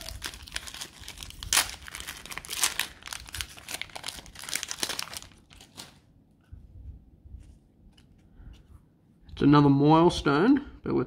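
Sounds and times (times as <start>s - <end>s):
card pack wrapper crackling: 0.0s - 6.0s.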